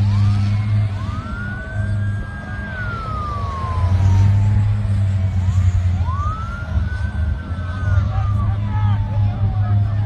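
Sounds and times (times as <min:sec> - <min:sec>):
fire truck siren wailing: 0:00.0 - 0:10.0
low engine drone: 0:00.0 - 0:10.0.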